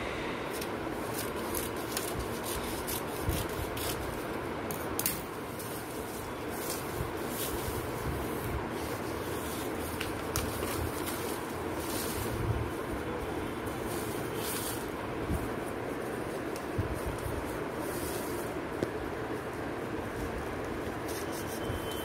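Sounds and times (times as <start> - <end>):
steady background hiss: 0.0 - 22.0
scissors snipping newspaper: 0.5 - 8.0, 8.7 - 12.4, 15.6 - 22.0
newspaper rustling: 0.6 - 22.0.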